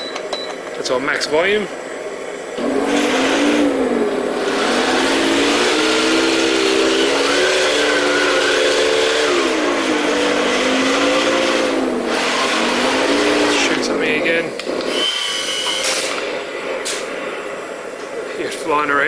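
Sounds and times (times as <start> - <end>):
simulated tank engine through speaker: 4.0 - 14.6.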